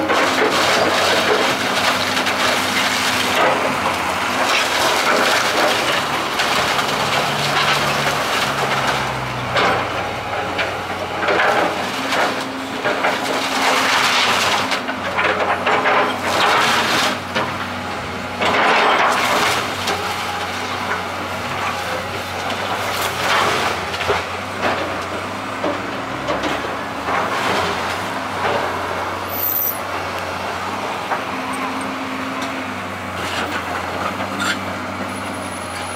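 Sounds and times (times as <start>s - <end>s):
timber crunching and splintering: 0.0s - 17.6s
debris clattering: 0.0s - 17.7s, 18.4s - 28.8s
excavator diesel engine running: 0.0s - 35.9s.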